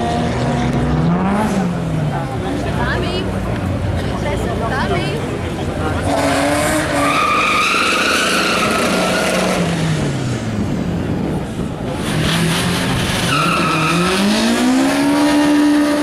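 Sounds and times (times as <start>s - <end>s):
car engine revving: 0.0s - 3.8s, 5.2s - 16.0s
tires squealing on tarmac: 5.8s - 10.1s, 11.9s - 16.0s.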